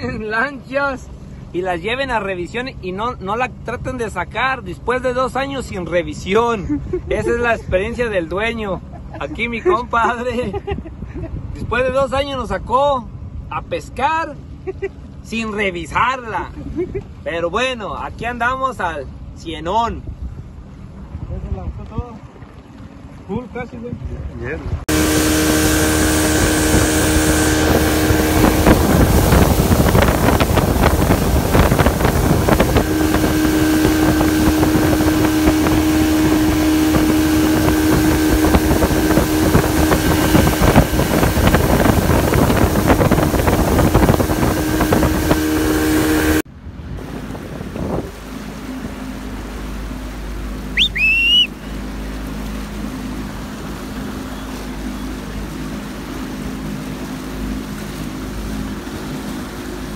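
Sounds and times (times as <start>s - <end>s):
boat engine humming: 0.0s - 59.9s
motorboat engine drone: 0.0s - 59.9s
water rushing from wake: 0.0s - 59.9s
wind: 0.0s - 59.9s
high chirp: 50.7s - 51.7s.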